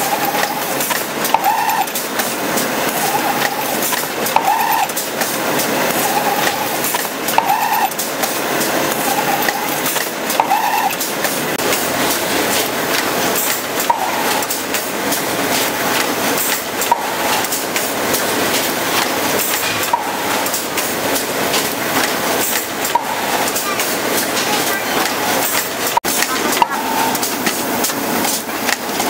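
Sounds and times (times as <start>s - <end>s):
machine clattering: 0.0s - 29.0s
short high machine tone: 26.2s - 27.3s.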